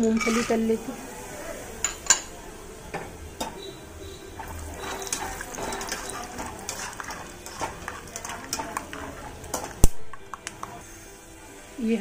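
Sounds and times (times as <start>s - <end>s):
peanuts clattering into pan: 0.0s - 0.6s, 4.4s - 10.8s
oil sizzling: 0.0s - 12.0s
spoon scraping against pan: 3.4s - 11.0s.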